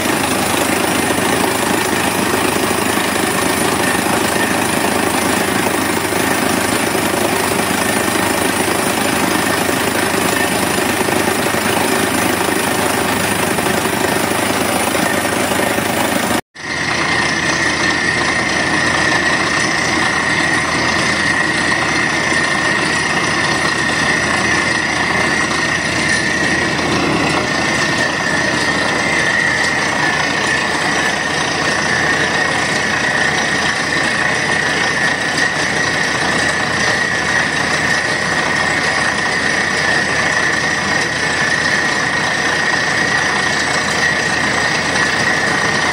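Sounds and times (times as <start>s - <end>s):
drilling rig engine and hammering: 0.0s - 45.9s
high whine: 0.0s - 45.9s.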